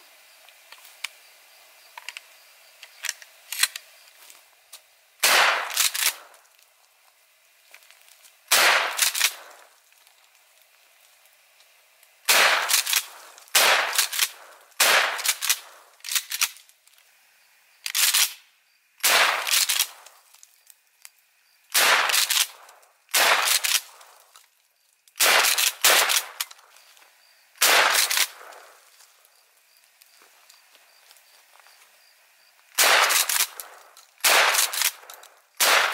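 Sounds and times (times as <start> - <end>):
shotgun blasts: 5.2 - 6.4, 8.5 - 9.6, 12.3 - 15.8, 19.0 - 20.0, 21.7 - 24.0, 25.2 - 26.4, 27.6 - 28.8, 32.8 - 35.9.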